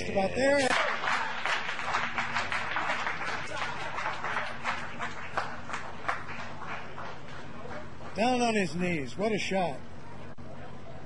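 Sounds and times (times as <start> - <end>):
people applauding: 0.4 - 8.9.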